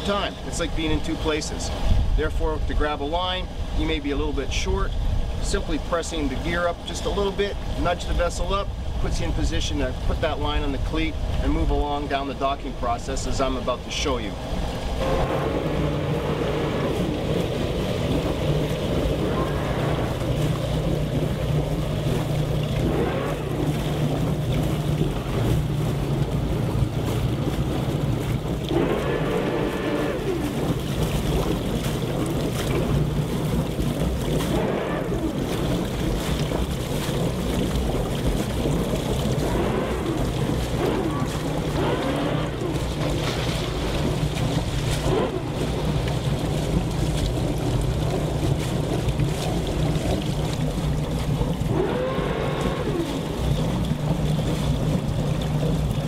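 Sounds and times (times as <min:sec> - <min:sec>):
boat engines rumbling: 0:00.0 - 0:56.0
water noise: 0:00.0 - 0:56.0
wind on microphone: 0:00.0 - 0:56.0.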